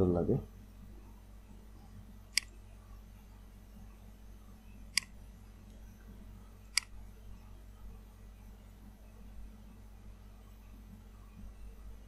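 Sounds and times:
low steady hum: 0:00.0 - 0:12.0
computer mouse clicks: 0:02.3 - 0:02.6, 0:04.9 - 0:05.8, 0:06.7 - 0:07.0.

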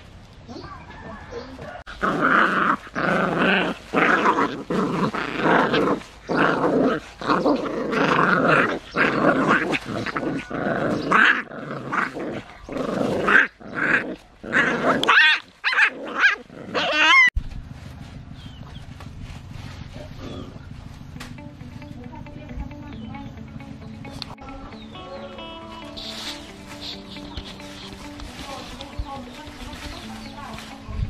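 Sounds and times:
puppies growling: 0:01.8 - 0:17.4, 0:20.0 - 0:21.0
puppies yelping: 0:01.8 - 0:17.4.

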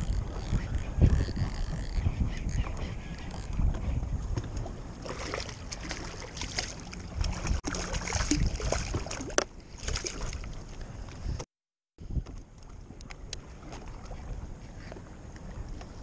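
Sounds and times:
fish splashing in water: 0:05.0 - 0:10.5.

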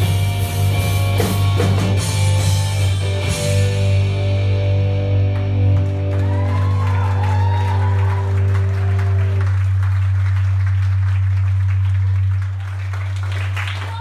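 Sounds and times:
rock band chord ringing: 0:00.0 - 0:09.1
low bass drone: 0:00.0 - 0:13.6
audience applauding: 0:05.2 - 0:14.0.

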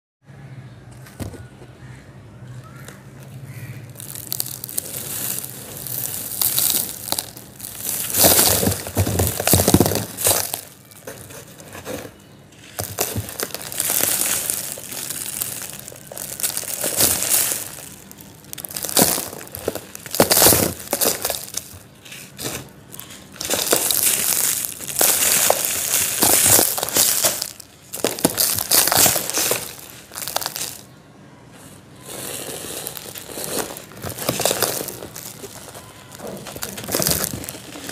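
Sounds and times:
hands crushing dry sand: 0:03.5 - 0:30.9, 0:32.0 - 0:37.9
sand grains pouring: 0:04.0 - 0:10.8, 0:12.8 - 0:21.7, 0:23.3 - 0:30.8, 0:32.1 - 0:37.9.

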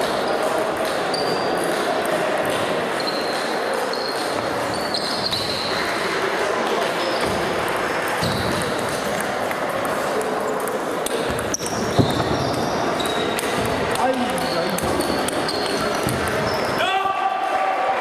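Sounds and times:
murmur of voices: 0:00.0 - 0:18.0
table tennis balls clicking: 0:07.0 - 0:16.7.

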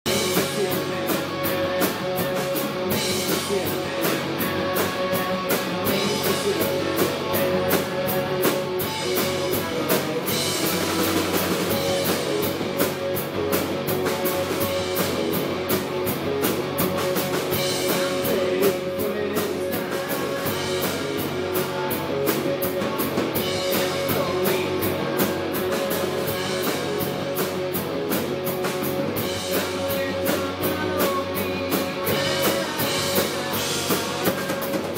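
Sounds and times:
distorted electric guitars: 0:00.0 - 0:34.9
drum kit beat: 0:00.0 - 0:34.9
electric bass: 0:00.0 - 0:34.9.

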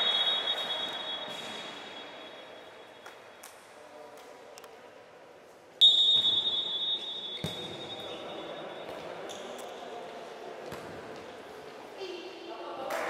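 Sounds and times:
referee's whistle blast: 0:00.0 - 0:02.4, 0:05.8 - 0:08.5.

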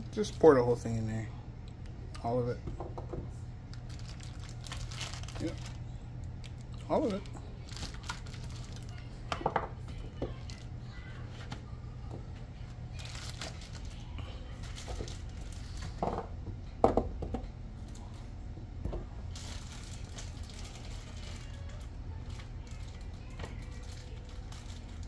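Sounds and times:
low steady hum: 0:00.0 - 0:25.0
plastic bag crinkling: 0:03.7 - 0:05.8, 0:06.4 - 0:09.1, 0:12.9 - 0:16.0, 0:19.3 - 0:25.0.

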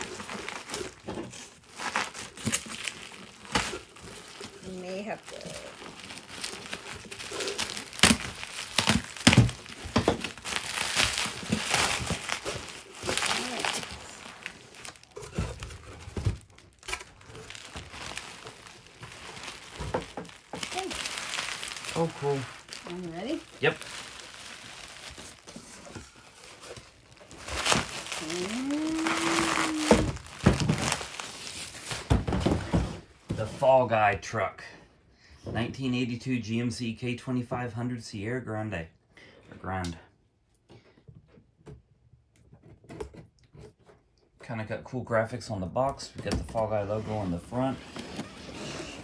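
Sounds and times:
bubble wrap crinkling and cracking: 0:00.0 - 0:32.8
drawn-out voice rising in pitch: 0:28.2 - 0:30.1.

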